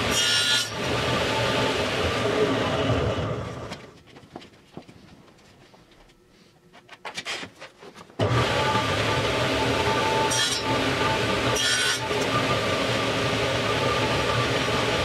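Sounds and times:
table saw running: 0.0 - 3.4, 8.2 - 15.0.

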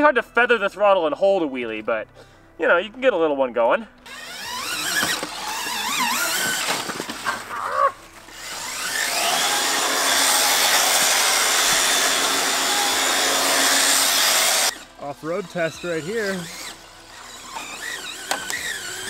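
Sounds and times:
electric motor whining: 4.0 - 19.0.

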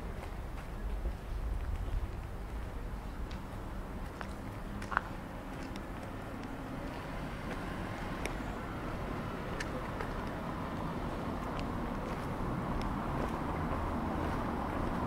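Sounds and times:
low rumble: 0.0 - 4.7.

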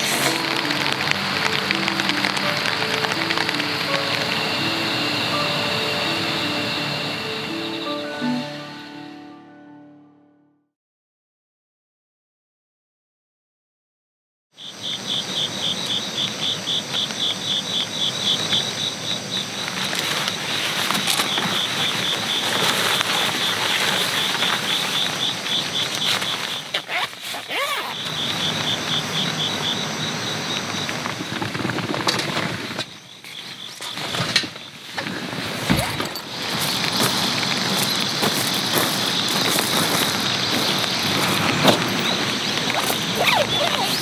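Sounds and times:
insects chirping: 0.0 - 9.3, 14.6 - 44.0
outdoor wash: 15.8 - 44.0.

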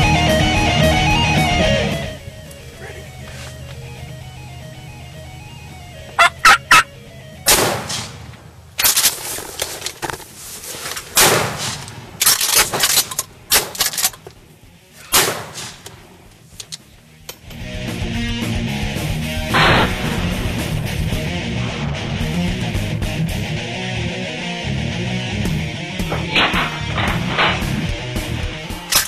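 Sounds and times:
turkey gobbling: 2.4 - 7.3
turkey short sharp notes: 6.1 - 7.7.

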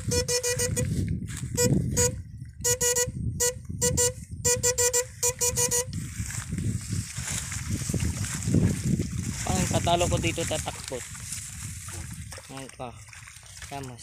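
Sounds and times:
electrofishing shocker buzzing: 0.0 - 0.9, 1.5 - 6.0
water sloshing and rustling: 6.0 - 14.0.

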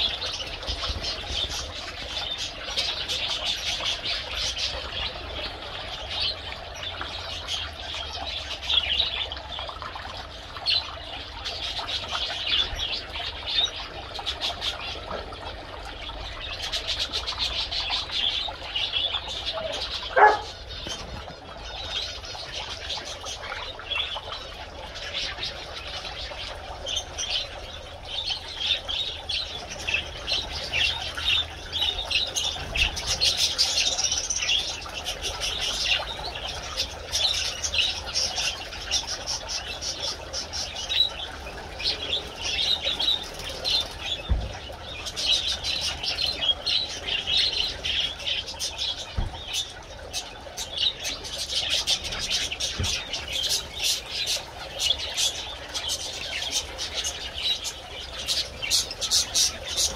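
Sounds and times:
finches chirping: 16.6 - 21.1.

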